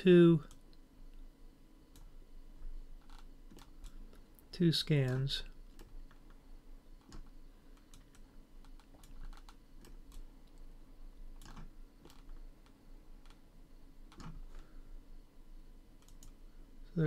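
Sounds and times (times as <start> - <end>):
keyboard and mouse clicking: 7.0 - 10.7, 11.4 - 13.4, 16.0 - 16.4.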